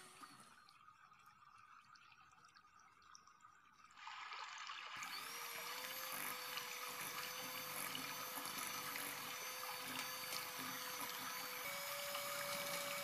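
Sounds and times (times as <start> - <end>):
electric hand mixer whining: 0.0 - 0.4, 5.0 - 13.0.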